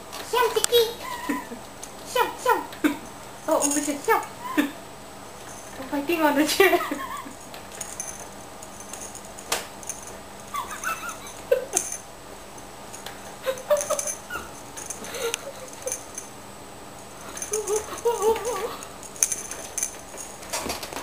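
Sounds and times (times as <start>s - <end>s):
cats scuffling: 5.2s - 21.0s.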